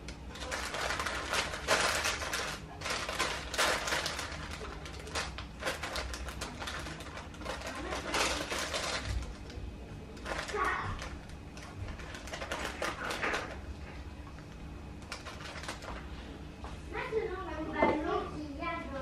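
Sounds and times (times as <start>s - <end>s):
paper rustling: 0.3s - 9.6s, 10.2s - 13.6s, 15.0s - 16.2s.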